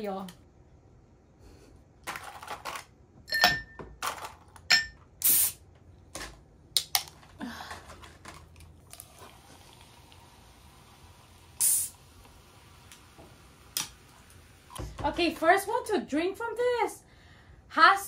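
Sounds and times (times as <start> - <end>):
fizzy hiss of escaping gas: 9.0 - 14.8.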